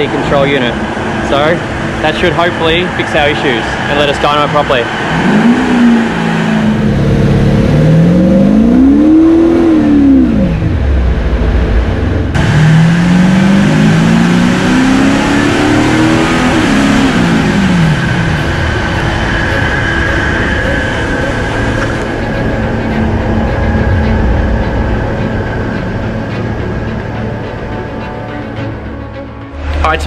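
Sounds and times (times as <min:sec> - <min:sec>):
diesel engine revving: 0:00.0 - 0:30.0
high whine: 0:00.0 - 0:30.0.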